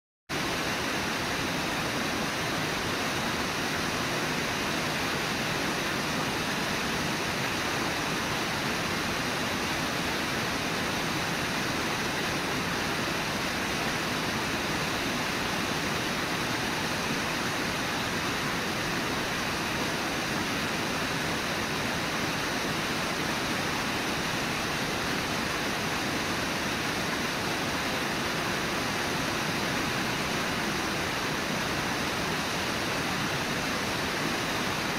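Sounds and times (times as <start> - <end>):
river water rushing: 0.4 - 34.9.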